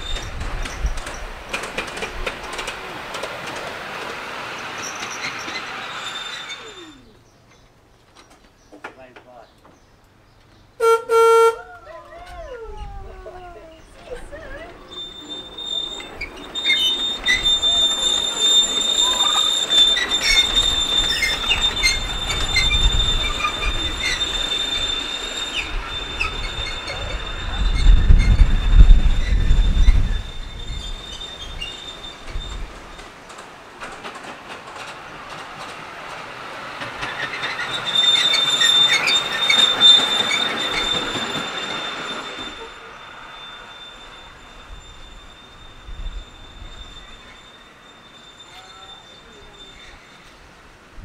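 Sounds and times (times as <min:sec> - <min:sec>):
wheels clicking over rails: 0:00.0 - 0:06.8, 0:14.6 - 0:42.6
miniature train whine: 0:00.0 - 0:07.6, 0:13.3 - 0:51.0
low rumble of passing train: 0:00.0 - 0:51.0.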